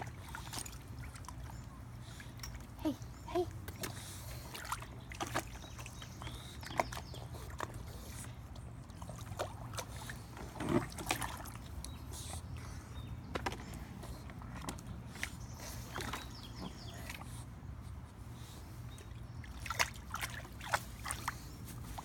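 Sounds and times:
water splashing in a pool: 0.0 - 2.0, 2.6 - 12.1, 19.1 - 22.0.

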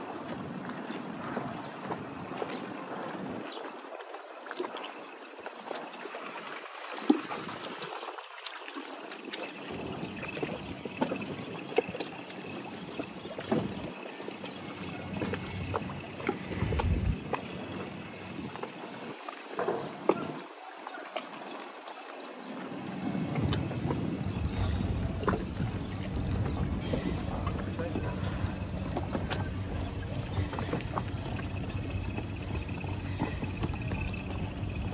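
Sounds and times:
small waves lapping against hull: 0.0 - 34.9
wind buffeting microphone: 9.7 - 19.2, 23.1 - 34.9.

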